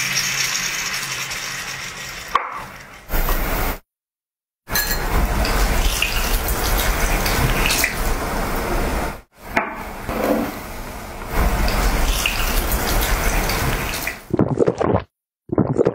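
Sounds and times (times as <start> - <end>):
soft drink pouring and fizzing: 0.0 - 3.8, 4.7 - 9.0, 11.3 - 15.9.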